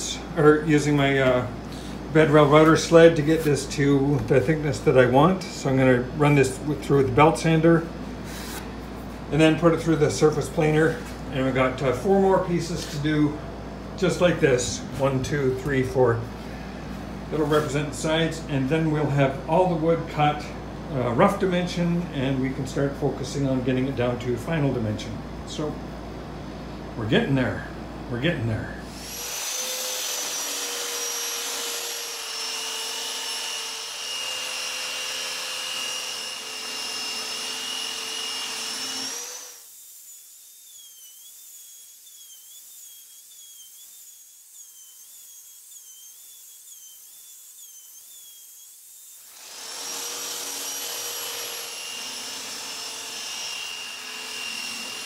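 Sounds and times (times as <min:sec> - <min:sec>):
electric belt sander whining: 0:29.0 - 0:55.0.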